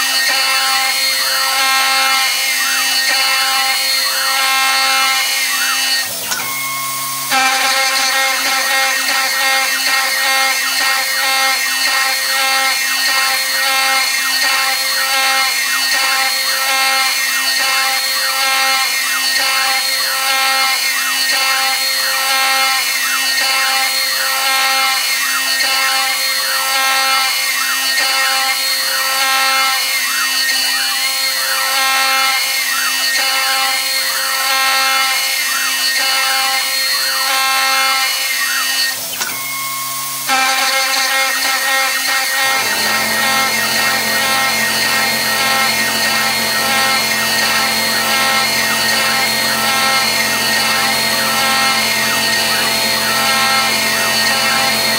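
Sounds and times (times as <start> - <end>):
end mill cutting metal: 0.0 - 54.9
spindle whine: 42.5 - 54.9.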